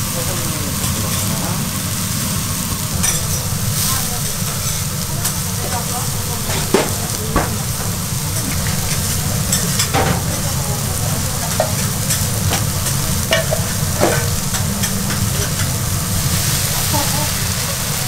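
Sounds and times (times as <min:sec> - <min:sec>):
meat sizzling on a griddle: 0:00.0 - 0:18.0
metal utensils clinking: 0:02.9 - 0:17.2.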